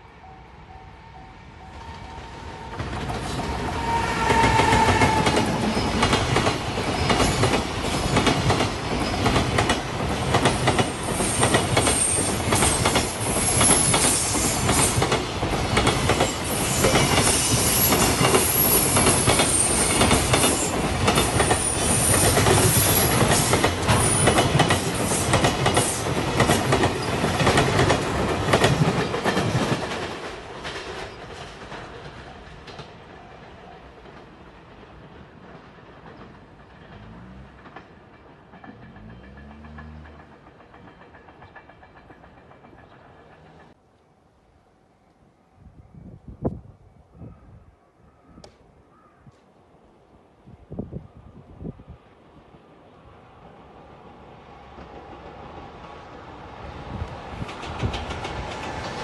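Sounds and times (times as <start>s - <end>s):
train wheels clattering: 2.9s - 33.1s, 33.9s - 43.8s, 57.1s - 59.0s
high wheel squeal: 3.6s - 6.0s.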